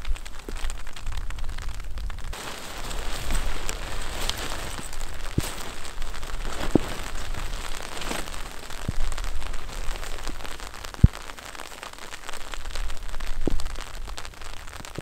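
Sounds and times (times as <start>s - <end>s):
tent fabric rustling: 2.3s - 12.8s.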